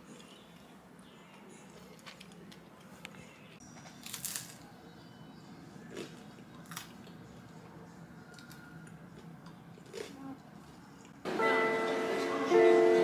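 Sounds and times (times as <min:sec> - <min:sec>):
toast crunching: 0:00.1 - 0:04.7, 0:05.9 - 0:07.7, 0:08.3 - 0:10.2.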